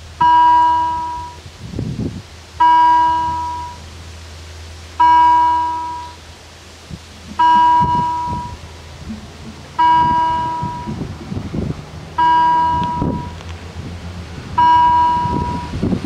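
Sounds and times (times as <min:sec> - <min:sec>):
low irregular rumble: 0:00.0 - 0:16.0
level-crossing warning bell: 0:00.2 - 0:01.4, 0:02.6 - 0:03.8, 0:05.0 - 0:06.2, 0:07.3 - 0:08.6, 0:09.8 - 0:11.0, 0:12.2 - 0:13.4, 0:14.6 - 0:15.8.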